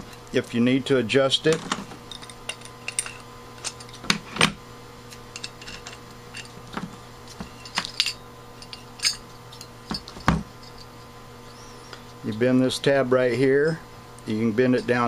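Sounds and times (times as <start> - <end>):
steady low hum: 0.0 - 15.0
metal parts clicking on workbench: 1.5 - 4.5, 5.1 - 10.9.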